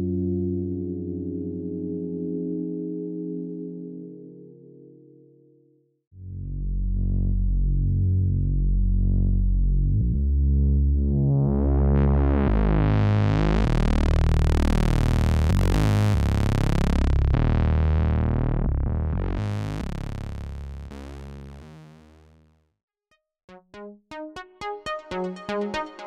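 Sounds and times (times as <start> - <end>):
synthesizer bass notes: 6.2 - 22.6, 23.5 - 26.0.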